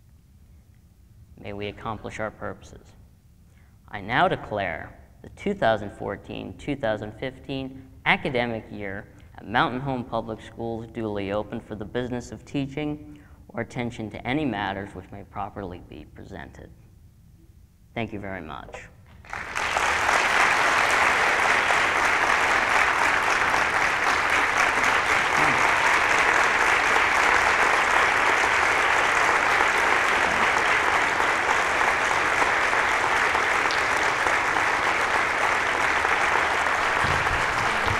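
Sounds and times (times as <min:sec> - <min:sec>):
large audience applauding: 0:19.1 - 0:37.9.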